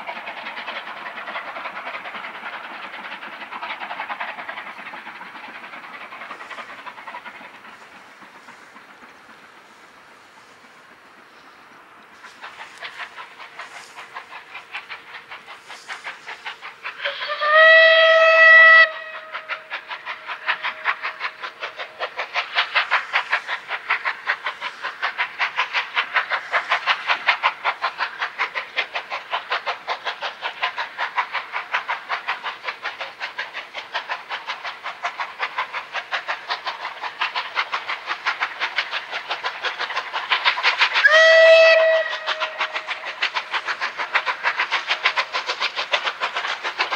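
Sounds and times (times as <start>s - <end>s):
steam locomotive exhaust beats: 0.0s - 46.9s
steam whistle blast: 17.1s - 19.4s, 41.0s - 42.3s.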